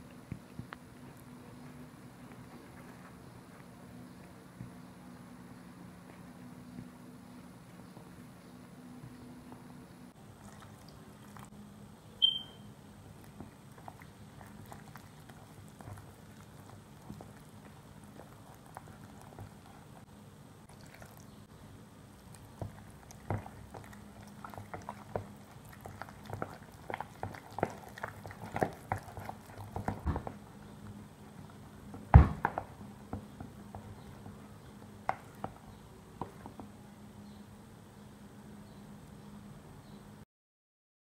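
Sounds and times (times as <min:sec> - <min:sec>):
spoon stirring thick batter: 0:12.2 - 0:32.1, 0:32.7 - 0:36.8.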